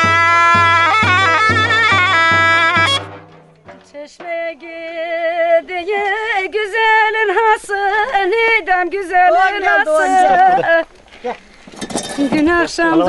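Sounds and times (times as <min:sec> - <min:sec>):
instrumental music with drum beat: 0:00.0 - 0:05.4
woman singing unaccompanied: 0:03.7 - 0:10.9, 0:12.2 - 0:13.0.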